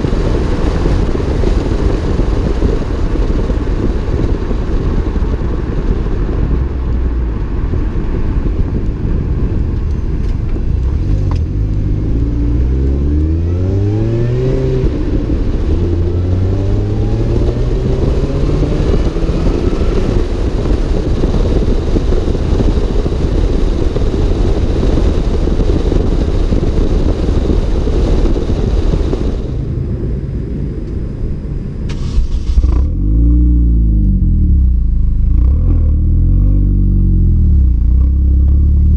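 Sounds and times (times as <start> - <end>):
car engine accelerating: 0.0 - 38.9
road noise: 0.0 - 38.9
wind noise: 0.0 - 38.9
engine revving: 9.8 - 23.0, 31.9 - 38.9.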